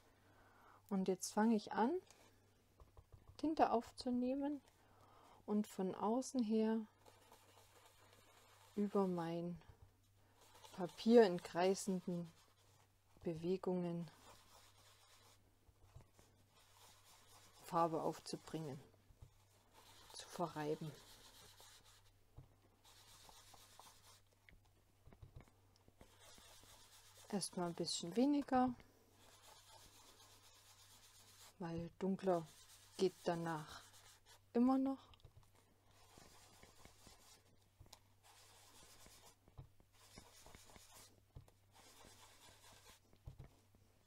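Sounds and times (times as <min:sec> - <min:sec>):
foam sponge rubbing on cardstock: 0:14.1 - 0:15.4, 0:16.5 - 0:18.7, 0:19.7 - 0:22.1, 0:22.8 - 0:24.2, 0:26.0 - 0:28.0, 0:29.2 - 0:34.5, 0:41.7 - 0:43.0.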